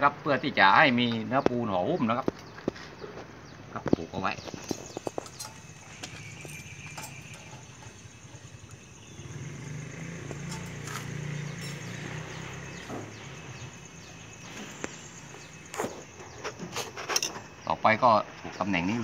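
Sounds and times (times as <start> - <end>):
low engine hum: 4.6 - 16.4.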